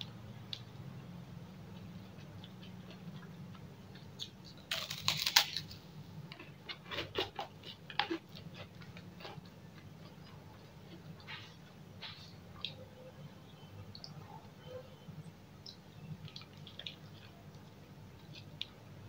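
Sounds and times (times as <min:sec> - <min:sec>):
cracker crunching: 0:01.7 - 0:12.8.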